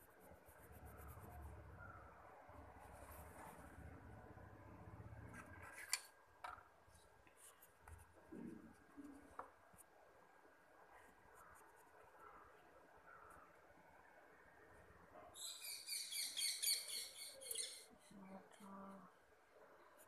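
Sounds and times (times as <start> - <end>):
pencil scratching on paper: 0.0 - 1.6, 7.2 - 9.9, 11.0 - 12.4.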